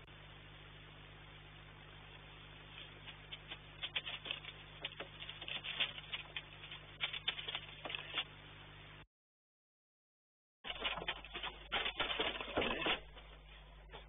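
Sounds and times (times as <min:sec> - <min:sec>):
steady low hum: 0:00.0 - 0:09.1
claws scratching metal and gravel: 0:02.7 - 0:08.3.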